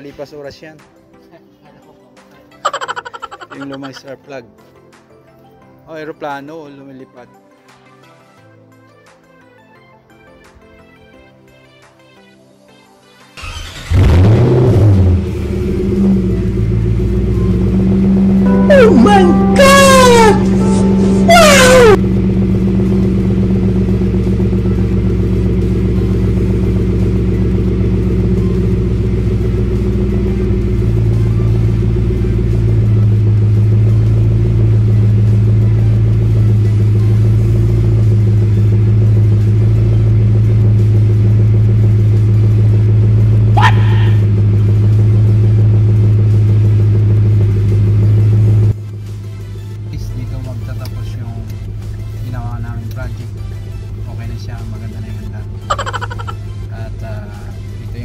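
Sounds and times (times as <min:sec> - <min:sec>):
car engine idling: 0:13.4 - 0:56.7.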